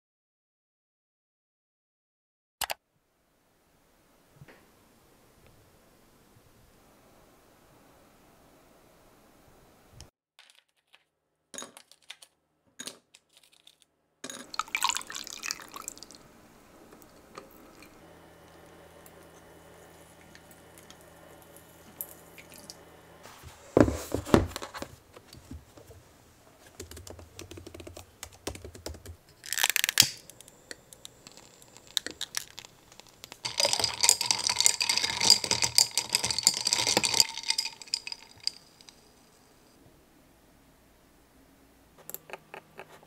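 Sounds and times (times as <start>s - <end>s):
dense clicking and clinking: 29.5s - 39.2s.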